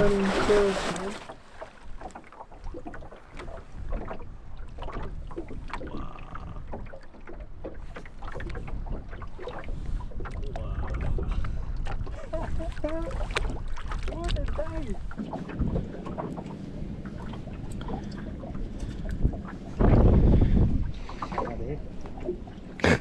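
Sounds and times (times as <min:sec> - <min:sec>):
water lapping against boat hull: 0:00.0 - 0:23.0
wind on microphone: 0:07.8 - 0:22.3.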